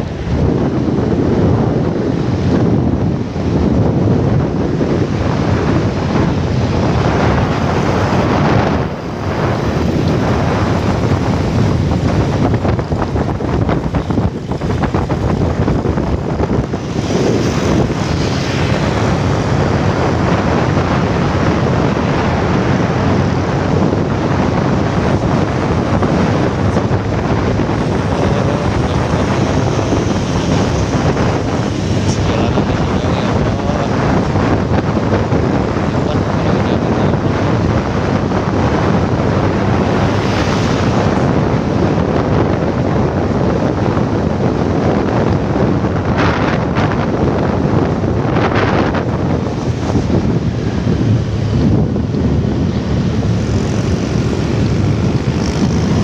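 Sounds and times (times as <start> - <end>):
motorcycle road noise: 0.0 - 56.0
wind rushing over microphone: 0.0 - 56.0.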